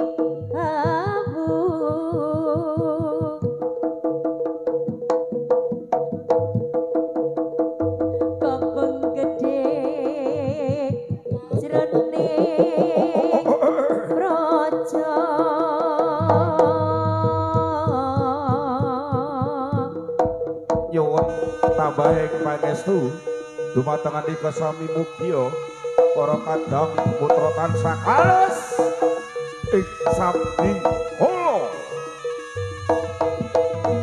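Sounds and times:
sharp drum strokes: 16.1 - 19.3, 20.0 - 34.0
wavering melodic line: 16.2 - 17.9, 21.0 - 34.0
sustained pitched tones: 16.2 - 19.0, 21.2 - 34.0.

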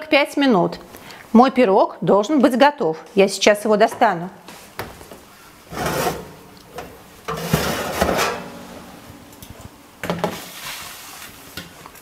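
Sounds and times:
metal tray sliding on oven rails: 5.7 - 9.4
oven door opening: 5.7 - 10.2.

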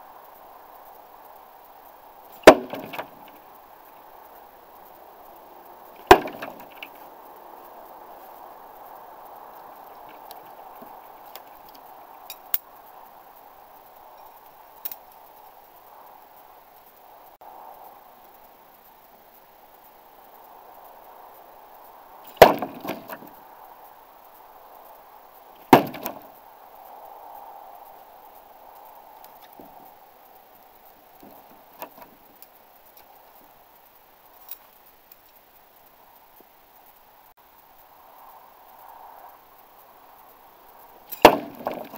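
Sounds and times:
background hiss: 0.0 - 41.9.

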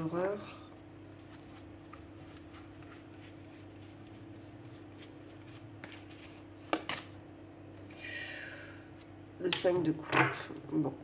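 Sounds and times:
cards shuffling: 1.1 - 7.2.

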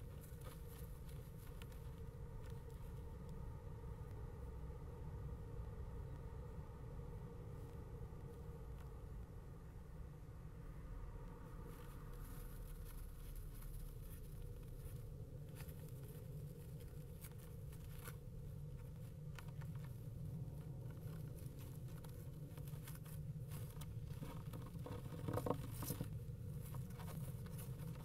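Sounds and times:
faint scratching and rustling: 0.0 - 3.4, 11.5 - 28.0
steady low hum: 0.0 - 28.0.

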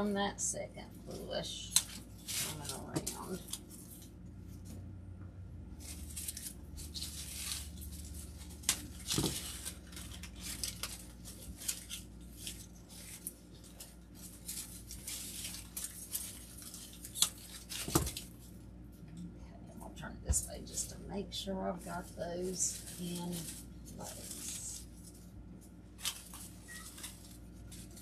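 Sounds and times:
artificial flower stems rustling: 0.0 - 28.0.

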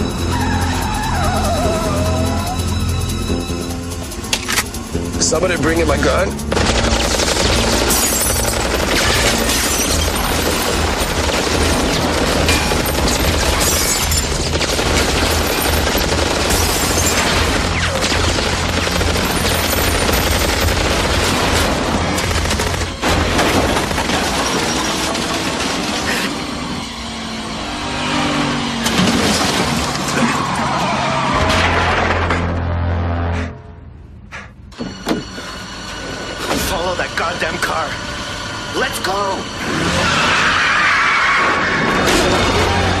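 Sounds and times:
film music score: 0.0 - 29.0
car engine: 0.0 - 43.0
rapid automatic gunfire: 5.8 - 26.5
glass shattering: 7.8 - 11.2, 11.8 - 17.9.

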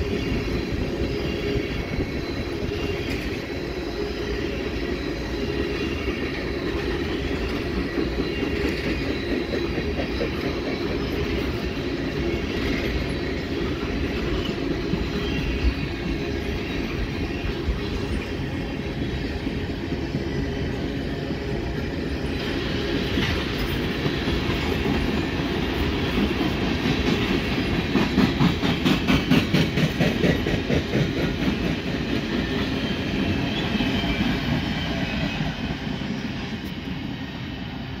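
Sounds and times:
train wheels rumbling on rail: 0.0 - 38.0
wheels clacking over rail joints: 5.4 - 35.7.

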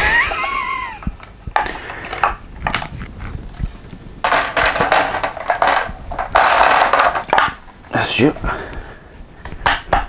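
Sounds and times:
resin parts clicking and knocking: 1.0 - 7.6.

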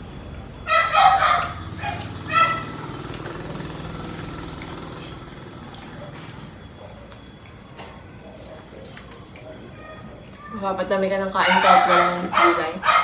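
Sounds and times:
small dog yipping: 0.7 - 2.8, 11.4 - 13.0.

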